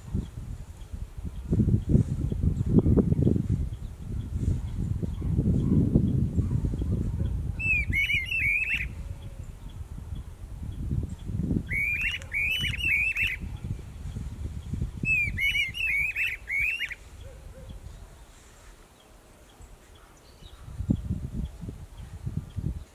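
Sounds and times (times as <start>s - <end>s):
birds calling sharp repeated notes: 7.6s - 22.1s.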